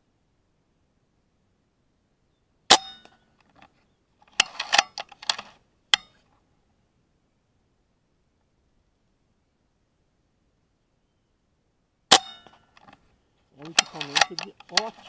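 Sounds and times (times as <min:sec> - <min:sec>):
rifle action metallic clicks: 0:02.7 - 0:06.2, 0:12.1 - 0:13.0, 0:13.6 - 0:15.0.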